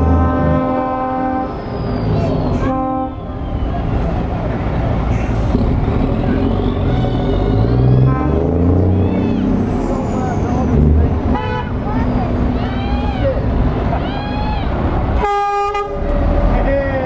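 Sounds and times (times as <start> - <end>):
truck air horn: 0.0 - 1.6, 2.5 - 3.4, 8.0 - 8.7, 11.3 - 11.8, 15.2 - 16.1
diesel truck engine driving past: 0.0 - 17.0.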